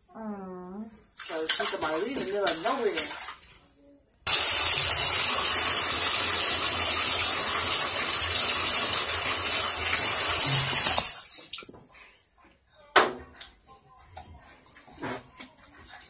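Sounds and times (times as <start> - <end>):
water running into a bathtub: 1.2 - 3.7, 4.3 - 12.0.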